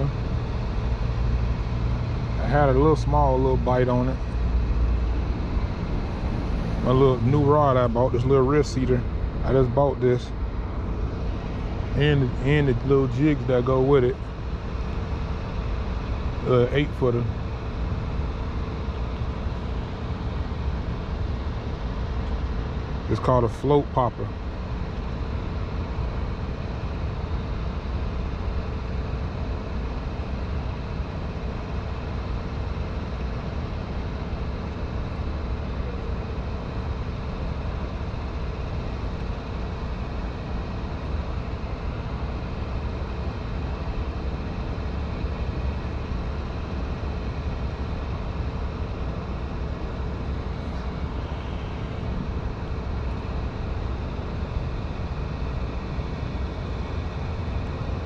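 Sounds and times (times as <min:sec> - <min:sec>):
outdoor rumble and hiss: 0:00.0 - 0:58.0.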